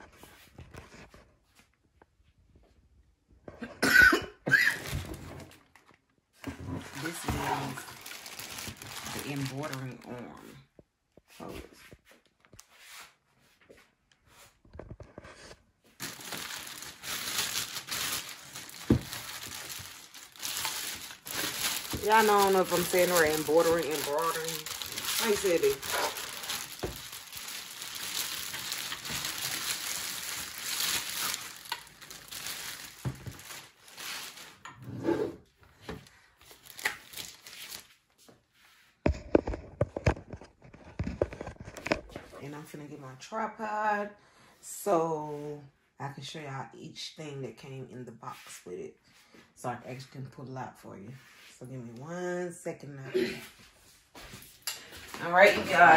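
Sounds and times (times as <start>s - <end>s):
packaging crinkling: 6.8s - 10.1s, 15.9s - 34.7s, 36.4s - 38.0s.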